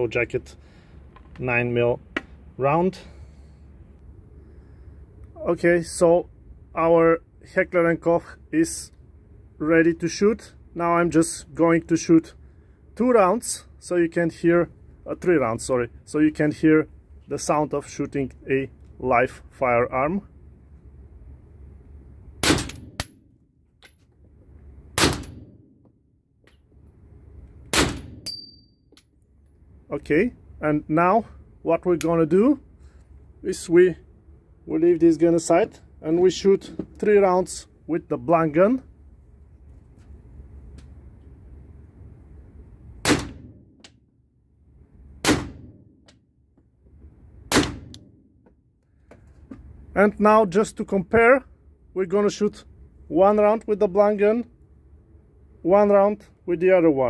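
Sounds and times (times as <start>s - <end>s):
blank pistol shots: 22.4s - 23.1s, 25.0s - 25.6s, 27.7s - 28.3s, 43.0s - 43.6s, 45.2s - 45.8s, 47.5s - 48.0s
gunshot echo off walls: 22.4s - 23.2s, 25.0s - 25.7s, 27.7s - 28.3s, 43.0s - 43.7s, 45.2s - 46.0s, 47.5s - 48.2s.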